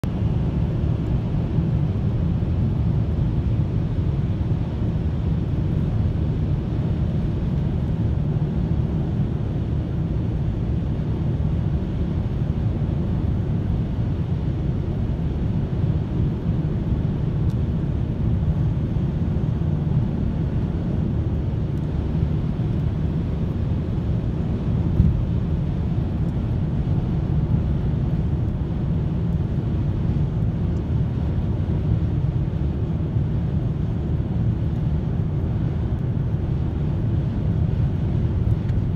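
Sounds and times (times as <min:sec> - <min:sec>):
car cabin road rumble: 0:21.9 - 0:31.7.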